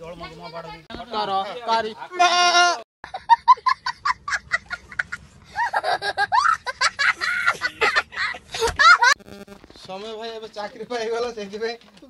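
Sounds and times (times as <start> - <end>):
child laughing: 3.1 - 9.2.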